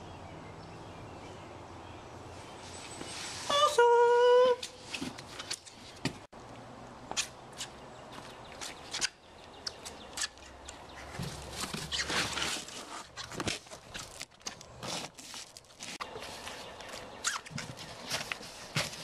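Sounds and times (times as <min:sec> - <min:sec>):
cardboard box rustling: 0:11.1 - 0:19.0.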